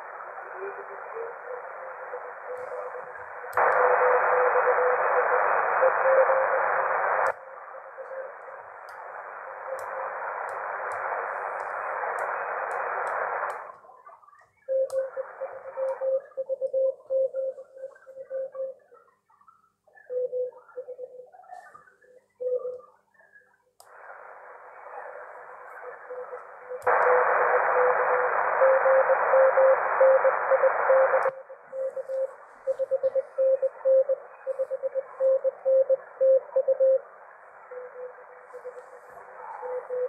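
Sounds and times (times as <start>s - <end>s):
radio receiver hiss: 0.0s - 14.0s, 14.7s - 18.6s, 23.8s - 40.0s
morse code beeps: 31.8s - 37.0s.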